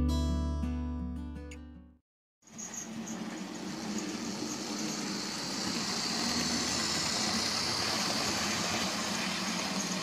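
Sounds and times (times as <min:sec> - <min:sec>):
model train motor whirring: 0:02.5 - 0:10.0.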